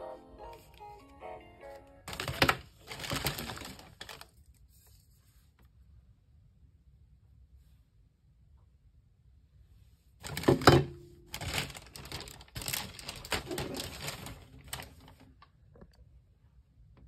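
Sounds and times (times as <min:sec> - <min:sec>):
plastic bag rustling: 0:02.0 - 0:05.3, 0:10.2 - 0:15.4.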